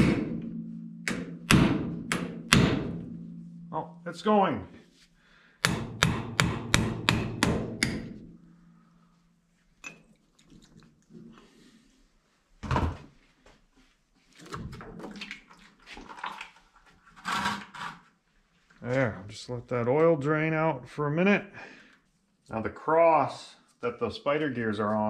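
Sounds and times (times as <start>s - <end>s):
thud: 0.0s - 3.7s
hammer striking metal: 0.0s - 4.0s, 5.6s - 8.4s.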